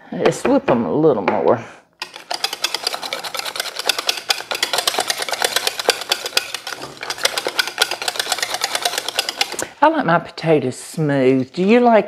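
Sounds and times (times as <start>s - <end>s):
whisk rattling in a metal saucepan: 2.0s - 9.7s.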